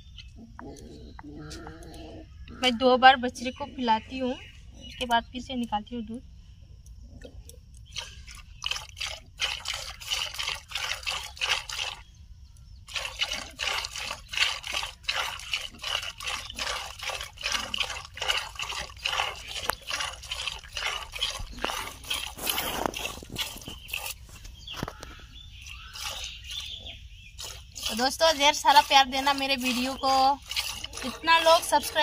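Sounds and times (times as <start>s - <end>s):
milk squirting into plastic bucket: 7.8s - 12.1s, 12.8s - 26.8s, 27.4s - 32.0s.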